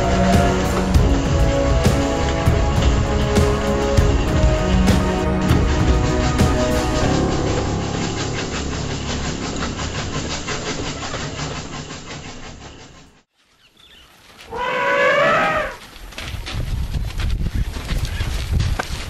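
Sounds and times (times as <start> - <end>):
elephant trumpeting: 0.0 - 2.3, 14.5 - 15.8
train clattering: 0.0 - 13.3.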